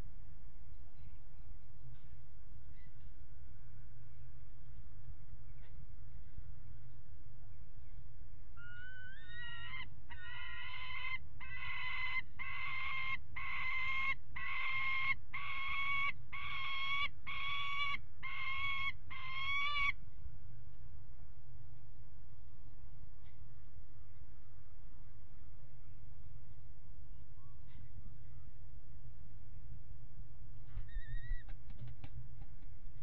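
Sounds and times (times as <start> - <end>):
falcon calling: 8.6 - 20.0.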